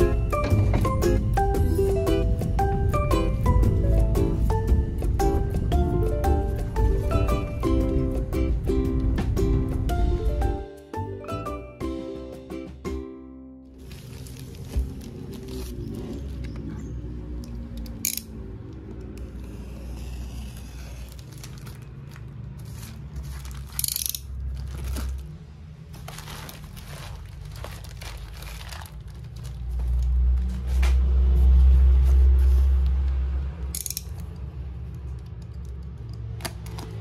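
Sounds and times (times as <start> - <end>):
plastic mailer bag crinkling and tearing: 13.7 - 16.4, 21.1 - 23.8, 24.4 - 25.3, 25.9 - 30.3.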